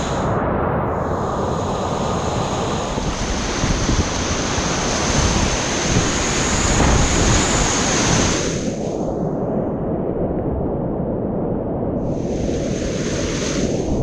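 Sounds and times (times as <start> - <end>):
wind buffeting microphone: 0.0 - 14.0
river whitewater rushing: 1.5 - 8.7.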